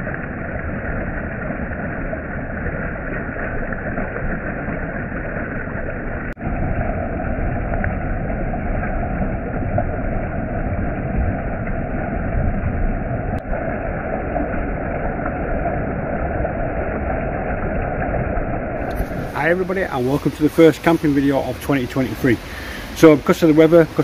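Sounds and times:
stream water rushing over rocks: 0:12.8 - 0:24.0.

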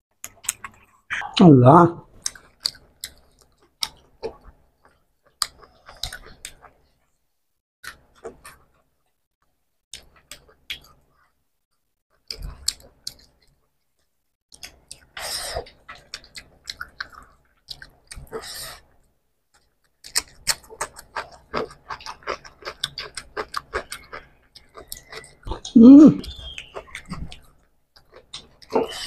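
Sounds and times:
wet chewing and lip-smacking: 0:00.2 - 0:01.0, 0:02.2 - 0:06.8, 0:09.9 - 0:11.0, 0:12.2 - 0:13.6, 0:14.5 - 0:18.9, 0:19.5 - 0:29.0.

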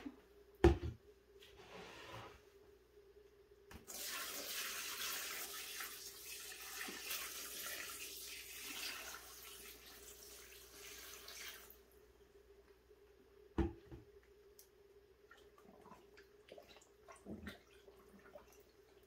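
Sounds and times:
water pouring into plastic tub: 0:03.8 - 0:11.8, 0:15.3 - 0:19.0.

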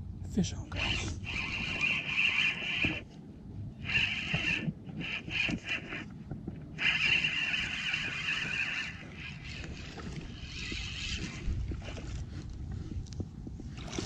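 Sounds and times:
fishing reel whirring: 0:00.7 - 0:03.1, 0:03.8 - 0:06.1, 0:06.7 - 0:12.6.

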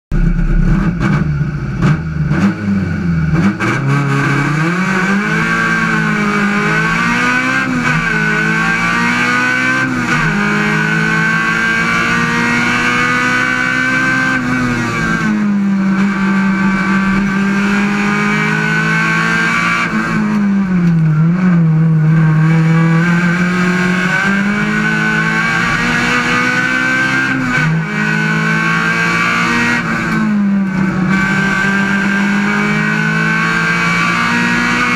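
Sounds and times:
race car engine accelerating: 0:00.1 - 0:34.9.

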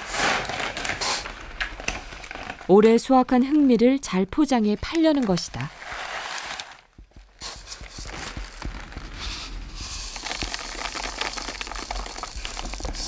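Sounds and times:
plastic bags crinkling: 0:00.0 - 0:03.1, 0:04.8 - 0:09.2, 0:10.0 - 0:13.0
rice grains pouring and rattling: 0:05.7 - 0:06.8, 0:07.4 - 0:13.0.

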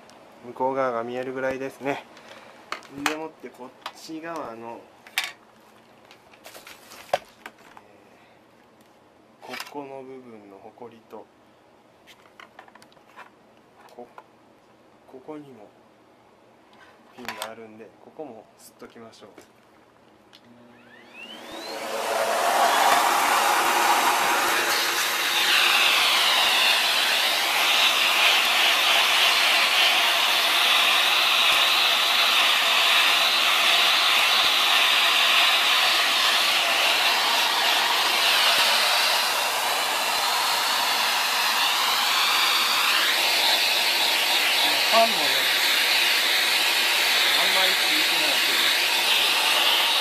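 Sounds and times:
handheld vacuum cleaner whining: 0:20.7 - 0:50.0.

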